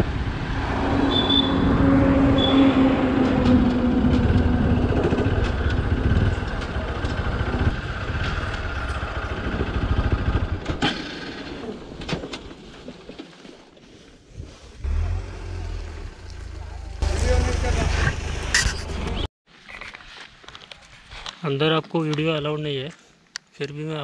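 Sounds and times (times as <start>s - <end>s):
wind noise on microphone: 0.0s - 8.3s
motorcycle engine running: 3.9s - 10.8s.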